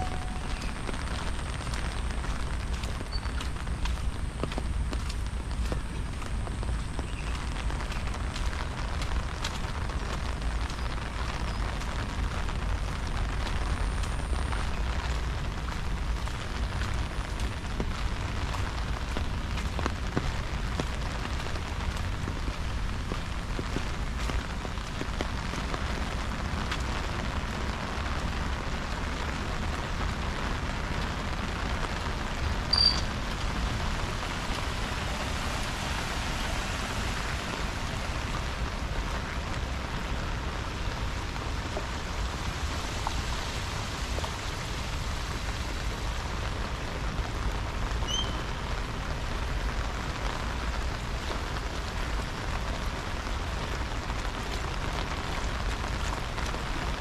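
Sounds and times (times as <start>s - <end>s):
rain pattering: 0.0s - 57.0s
high chirp: 32.7s - 33.1s.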